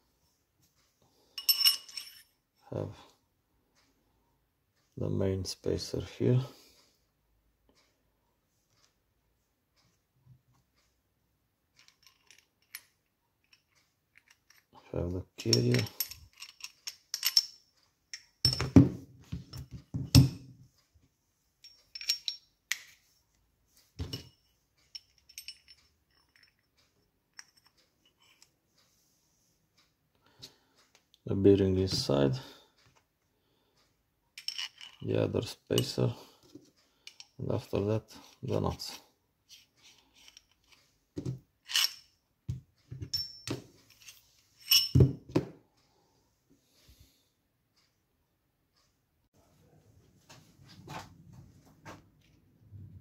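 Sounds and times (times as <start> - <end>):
metal parts knocking and clinking: 1.4 - 2.3, 11.8 - 14.8, 15.4 - 20.6, 21.6 - 23.0, 24.0 - 28.5, 34.4 - 36.1, 39.5 - 42.1, 42.9 - 45.5.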